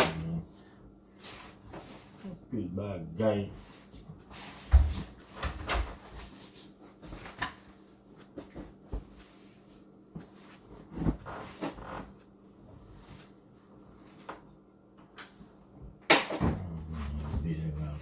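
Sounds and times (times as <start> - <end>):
objects knocking and thumping: 16.0 - 16.8.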